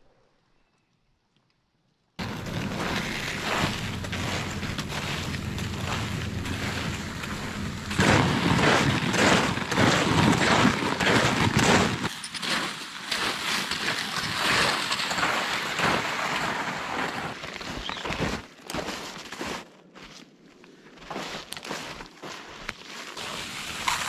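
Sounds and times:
wind rumble on microphone: 2.2s - 12.1s
snowshoe footsteps crunching snow: 2.2s - 24.0s.

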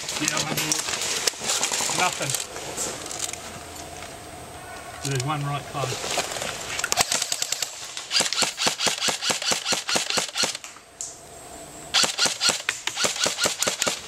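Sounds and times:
airsoft rifle cracks: 6.9s - 11.2s.

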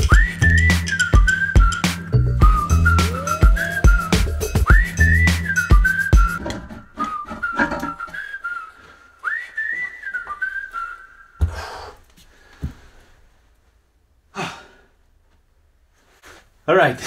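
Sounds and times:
person whistling a tune: 0.0s - 11.8s.

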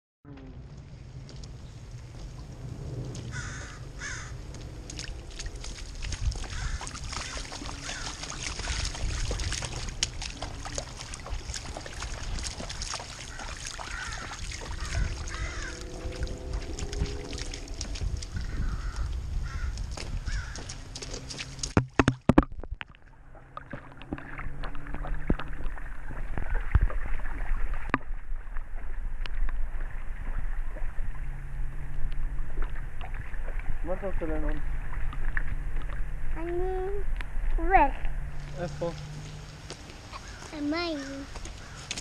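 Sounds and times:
boots splashing through puddles: 3.1s - 22.3s, 38.3s - 42.0s
water drops ticking on camera: 4.3s - 29.6s.

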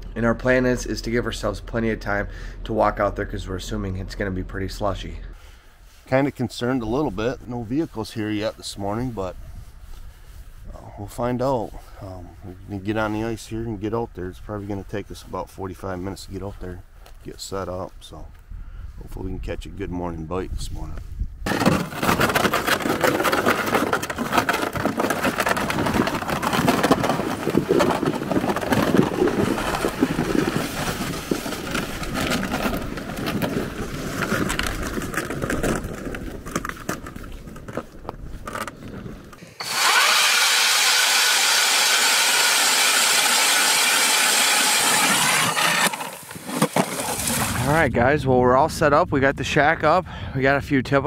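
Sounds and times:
ice auger drilling: 21.5s - 36.8s, 38.5s - 47.6s
sled scraping over snow: 21.5s - 47.8s.

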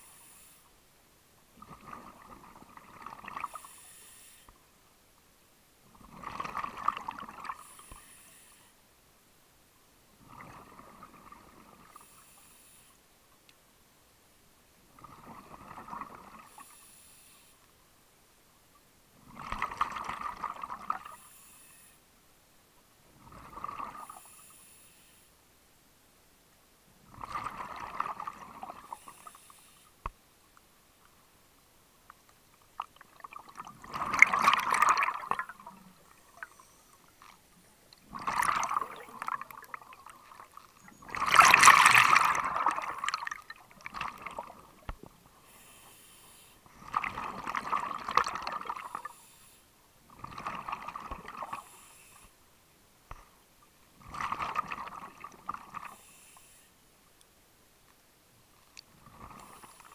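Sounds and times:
regulator inhale hiss: 0.0s - 0.8s, 3.4s - 4.6s, 7.5s - 8.8s, 12.0s - 13.0s, 16.4s - 17.7s, 21.1s - 22.1s, 24.0s - 25.4s, 28.8s - 30.1s, 45.3s - 46.7s, 48.9s - 49.8s, 51.6s - 52.4s, 55.9s - 56.8s
exhaled air bubbling underwater: 1.6s - 3.8s, 5.9s - 7.8s, 10.2s - 12.1s, 14.9s - 16.6s, 19.2s - 21.2s, 23.2s - 24.2s, 27.1s - 29.2s, 32.7s - 37.3s, 37.9s - 45.1s, 46.7s - 49.2s, 50.1s - 51.8s, 54.0s - 56.0s.

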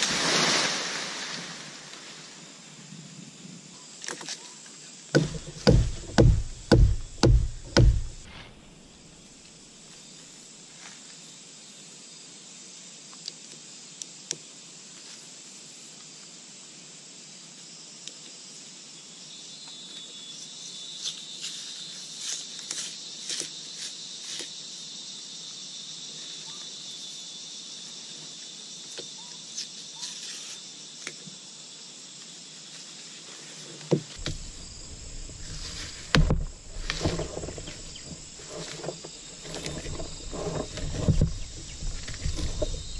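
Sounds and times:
forest insects buzzing: 0.0s - 42.9s
louder knocks: 5.2s - 8.5s, 34.2s - 38.2s.

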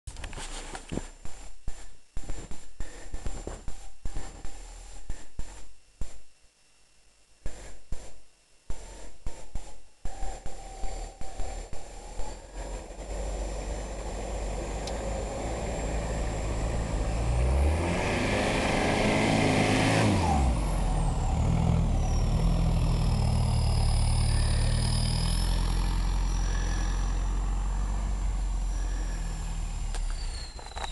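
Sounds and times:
engine revving under load: 10.1s - 30.9s
tyres churning snow: 11.5s - 30.4s.

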